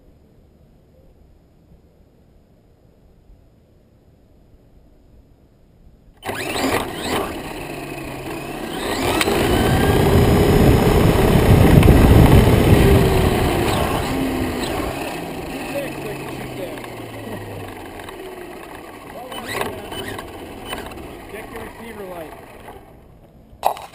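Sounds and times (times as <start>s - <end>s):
model airplane motor running: 6.2s - 23.3s.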